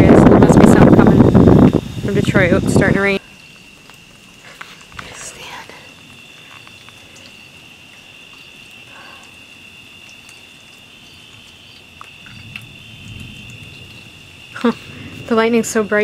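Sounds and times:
crickets trilling: 0.0 - 16.0
distant thunder: 12.2 - 16.0.

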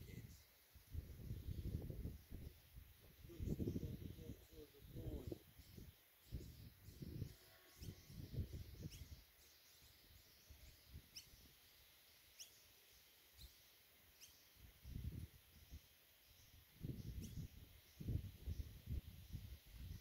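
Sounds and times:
wind buffeting microphone: 0.0 - 9.2, 14.8 - 15.8, 16.8 - 20.0
bird chirping: 0.0 - 20.0.

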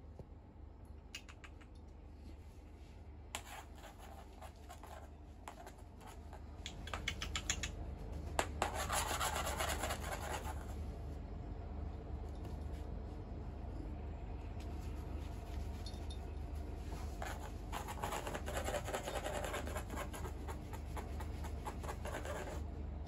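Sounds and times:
cat toy scratching on wood floor: 17.0 - 22.6.

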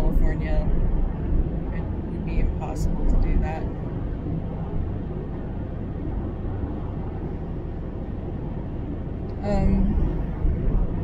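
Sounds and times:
car cabin road and engine noise: 0.0 - 11.0.

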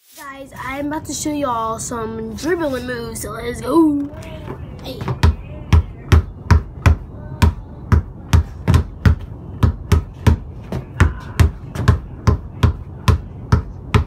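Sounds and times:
basketball dribbling: 4.9 - 14.0.

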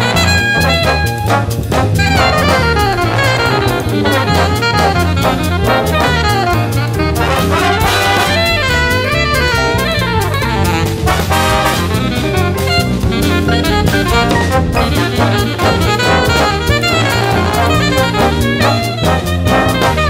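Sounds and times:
alto saxophone jazz solo: 0.0 - 20.0
big band bass: 0.0 - 20.0
drum kit: 0.0 - 20.0.

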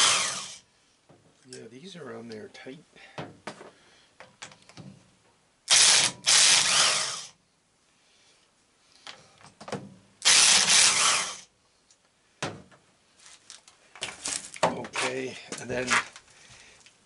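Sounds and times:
corded power tool spinning out bolts: 0.0 - 0.6, 5.7 - 7.3, 10.2 - 11.5.

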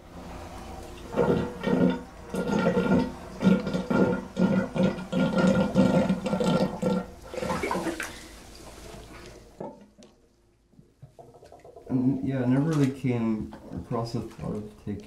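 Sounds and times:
water gushing from bathtub faucet: 1.0 - 9.8, 11.0 - 12.2.

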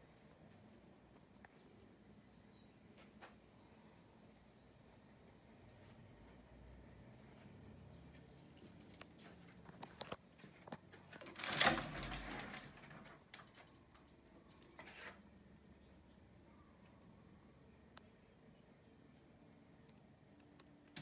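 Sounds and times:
light clicks and rustles: 7.4 - 15.3
louvered closet door clattering: 11.2 - 13.6.

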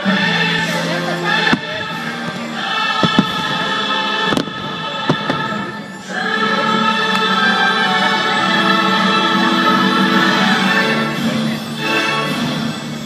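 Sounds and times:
choir and orchestra music: 0.0 - 13.0
firework bangs: 1.4 - 6.0.

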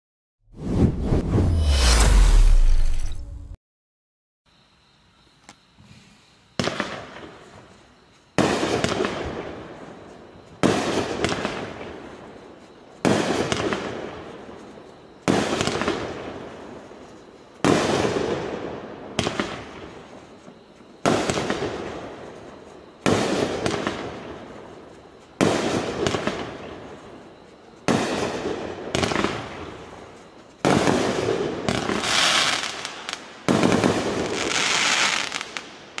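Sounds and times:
fireworks bangs: 25.4 - 27.0, 27.8 - 35.7.

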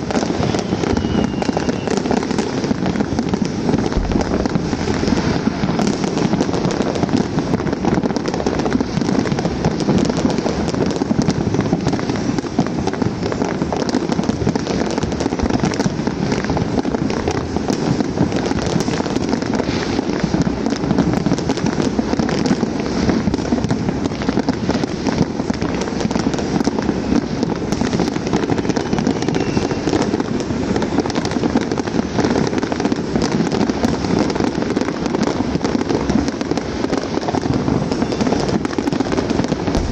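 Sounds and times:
fireworks crackling and popping: 0.0 - 39.9.

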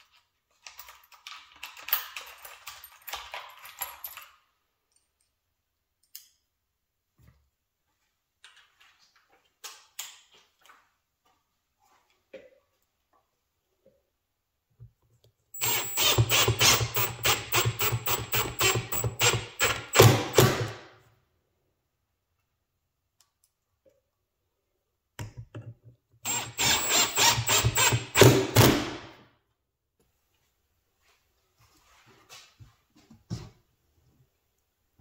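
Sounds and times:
handheld power tool clattering: 15.6 - 20.8, 26.2 - 29.0.

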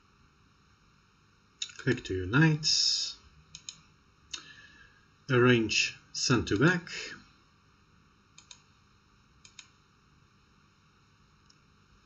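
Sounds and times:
faint mouse clicks: 3.5 - 4.5, 8.4 - 8.7, 9.4 - 9.8.

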